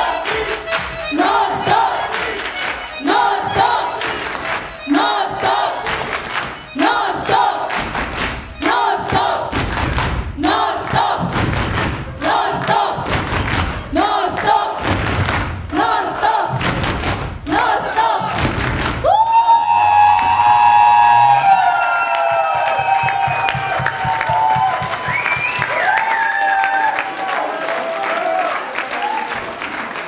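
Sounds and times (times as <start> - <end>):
crowd chanting: 0.0 - 9.8, 10.4 - 11.4, 12.1 - 13.3, 13.9 - 15.0, 15.7 - 16.7, 17.5 - 18.6
rhythmic clapping: 0.0 - 19.1, 21.9 - 30.0
low thumps: 7.7 - 15.9.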